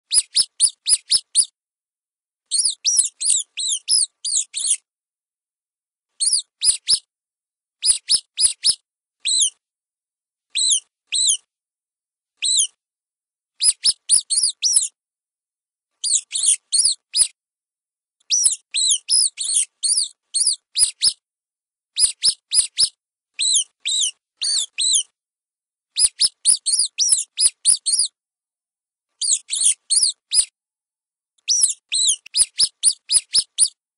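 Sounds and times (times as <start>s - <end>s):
rodent squeaking: 0.1s - 1.5s, 2.5s - 4.8s, 6.2s - 7.1s, 7.8s - 9.6s, 10.6s - 11.5s, 12.4s - 12.8s, 13.6s - 15.0s, 16.0s - 17.4s, 18.2s - 21.2s, 22.0s - 25.1s, 26.0s - 28.2s, 29.2s - 30.5s, 31.4s - 33.8s.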